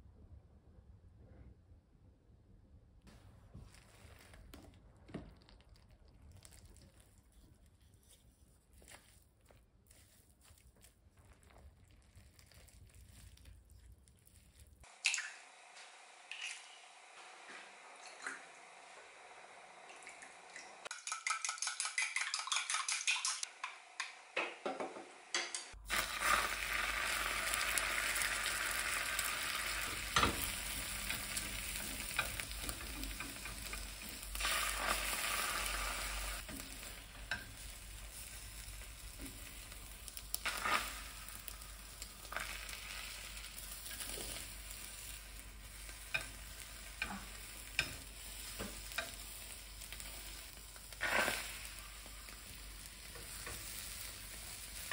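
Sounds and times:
egg sizzling in pan: 11.4 - 54.9
chopsticks clicking and scraping pan: 30.2 - 35.1, 36.4 - 38.2, 43.6 - 51.6.

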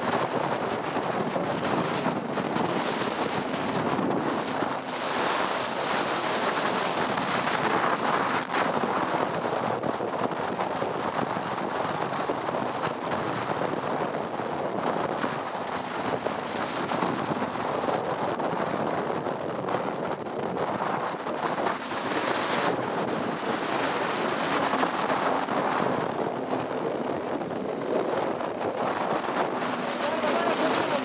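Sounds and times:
bus interior rushing noise: 0.0 - 31.0
tyres running through water: 21.2 - 31.0.

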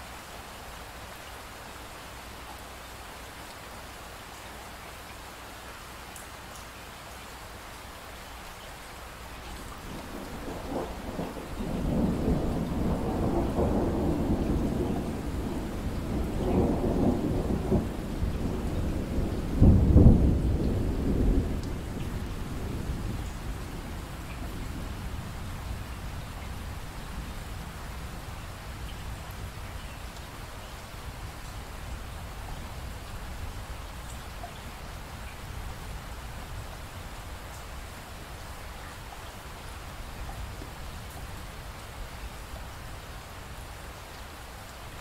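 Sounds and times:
steady rain: 0.0 - 45.0
thunder rolling: 9.8 - 25.0.

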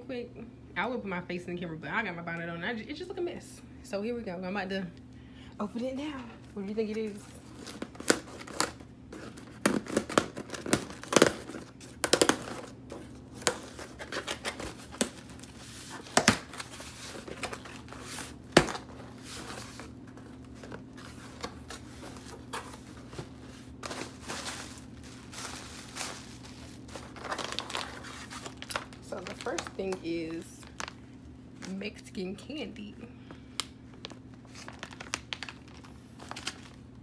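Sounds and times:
plastic wrap rustling: 6.1 - 31.8, 33.8 - 36.8
cardboard rustling: 6.9 - 30.9
packing tape ripping: 23.8 - 29.9.

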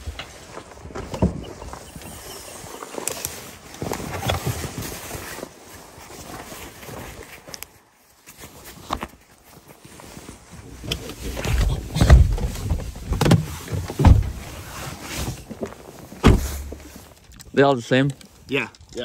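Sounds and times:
bags and fabric rustling: 0.0 - 17.2
dull bumps: 11.4 - 14.7, 16.2 - 16.9.

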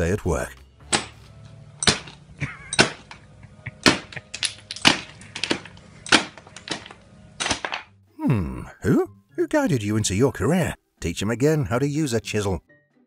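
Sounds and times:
demolition hammer on concrete: 0.8 - 1.2, 1.8 - 3.2, 3.8 - 7.9.

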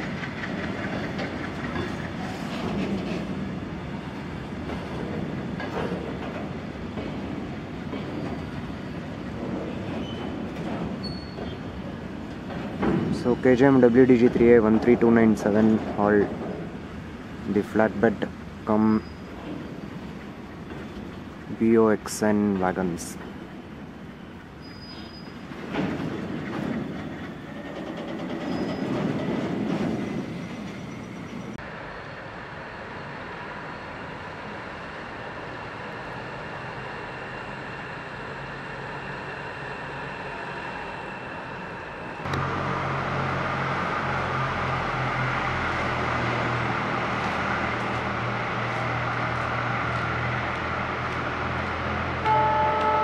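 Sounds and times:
diesel locomotive engine running: 25.4 - 53.0.

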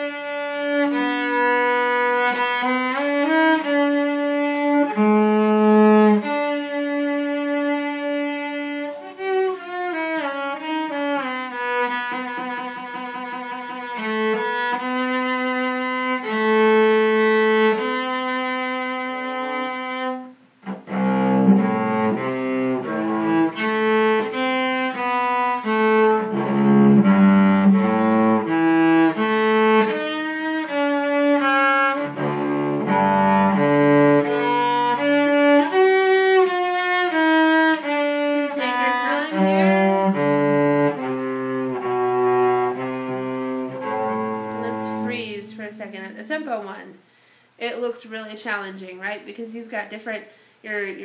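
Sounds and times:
bowed cello notes: 0.0 - 47.1.

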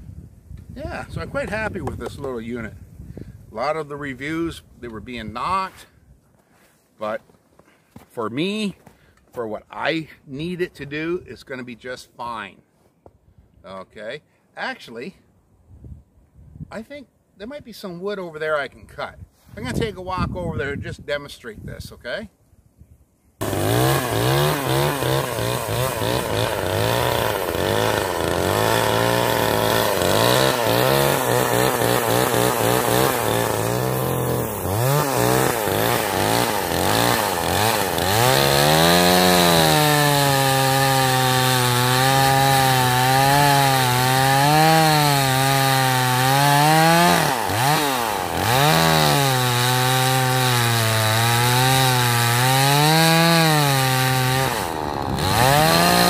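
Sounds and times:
chainsaw cutting through log: 23.4 - 56.0.

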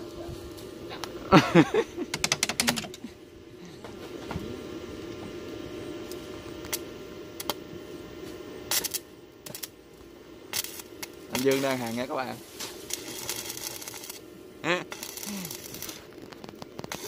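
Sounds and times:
machine humming: 0.0 - 17.0
sharp metallic clicks: 2.1 - 3.0
short crackle: 8.7 - 9.8, 10.5 - 14.2, 14.8 - 17.0.

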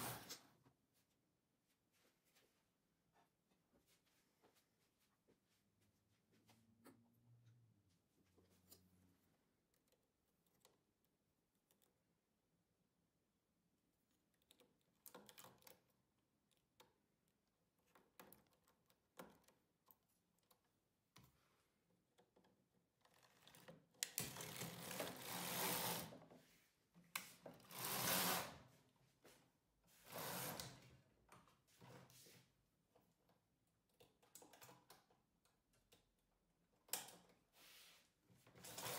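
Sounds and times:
knitting carriage sliding: 0.0 - 0.4, 23.1 - 26.5, 27.2 - 28.7, 30.0 - 30.9, 37.6 - 38.9.

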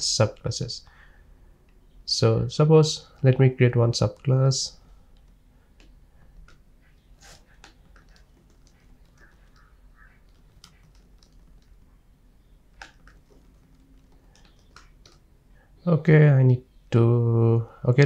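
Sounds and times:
typing on keyboard: 7.3 - 12.0, 12.6 - 15.2.

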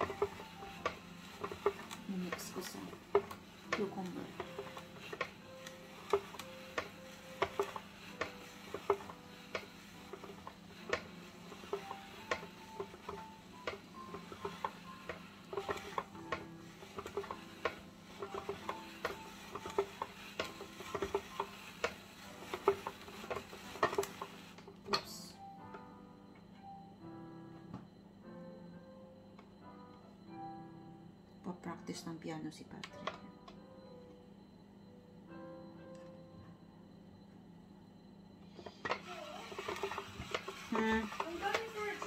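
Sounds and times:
spiralizer crank clicking: 0.0 - 25.2, 38.6 - 42.0.

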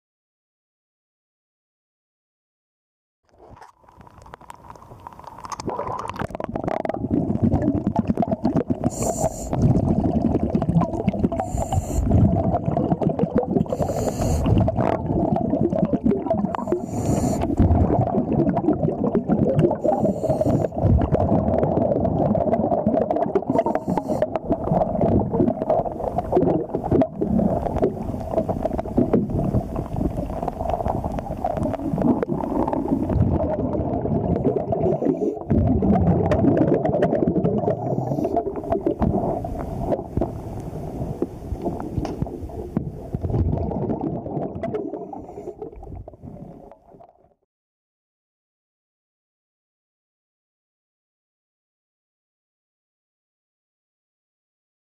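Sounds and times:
underwater rumbling and bubbling: 3.3 - 47.4
scuba regulator hissing: 8.9 - 9.6, 11.4 - 12.1, 13.7 - 14.5, 16.6 - 17.5, 19.8 - 20.7, 23.6 - 24.3.

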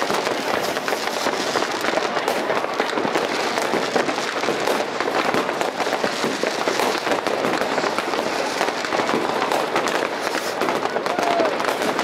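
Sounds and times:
fireworks crackling: 0.0 - 12.0.

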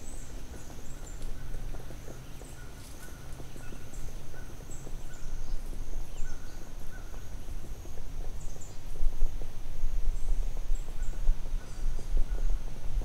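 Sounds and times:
small birds chirping: 0.0 - 9.0
steady high-pitched hiss: 0.0 - 13.0.

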